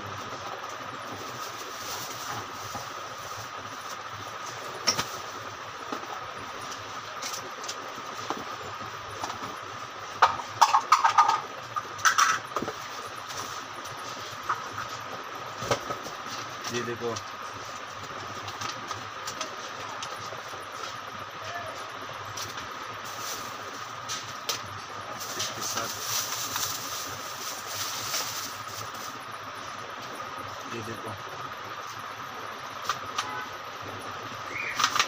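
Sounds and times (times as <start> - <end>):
faint high whine: 0.0 - 35.0
steady background hum: 0.0 - 35.0
plastic bag crinkling: 25.2 - 29.2.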